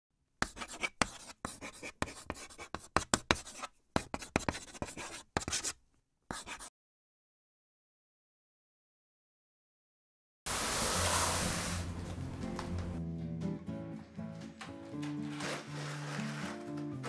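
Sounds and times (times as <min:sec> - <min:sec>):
pen scratching on paper: 0:00.4 - 0:06.7.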